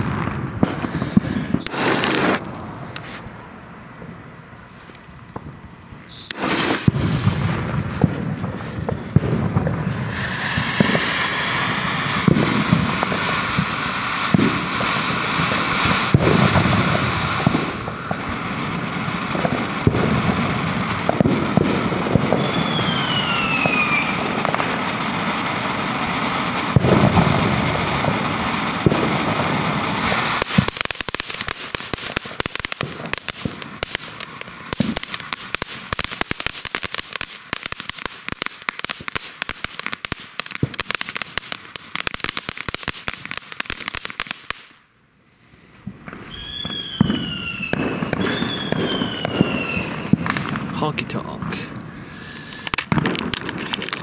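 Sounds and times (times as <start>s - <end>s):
falling firework whistle: 0.0s - 45.0s, 45.6s - 54.0s
firework crackling: 0.0s - 54.0s
firework fountain hissing: 0.0s - 54.0s.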